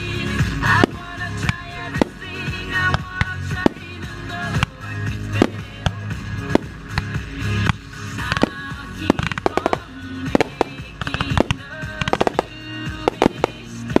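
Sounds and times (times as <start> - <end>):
fireworks bursting and crackling: 0.0 - 14.0
music playing: 0.0 - 14.0.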